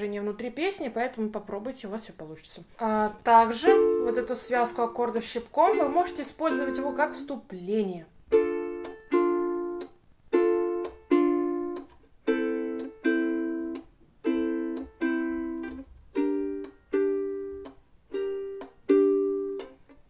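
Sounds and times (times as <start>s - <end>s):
ukulele chords plucked and muted: 3.4s - 7.4s, 8.3s - 20.0s.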